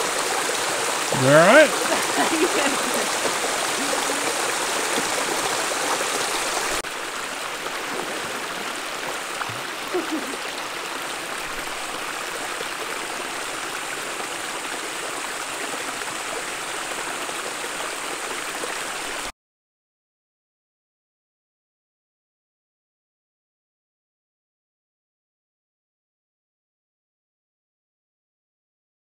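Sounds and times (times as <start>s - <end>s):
cascading water rushing: 0.0s - 19.3s.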